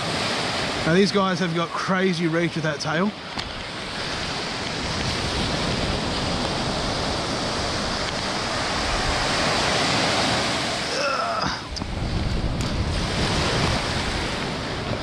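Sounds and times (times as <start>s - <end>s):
surf washing on beach: 0.0s - 15.0s
wind buffeting microphone: 3.3s - 10.9s, 11.5s - 15.0s.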